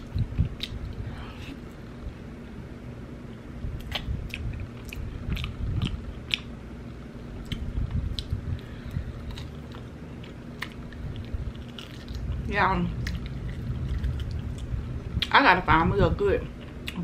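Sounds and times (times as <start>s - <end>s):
chewing with wet smacking: 0.0s - 1.0s, 3.8s - 6.5s, 7.4s - 15.3s.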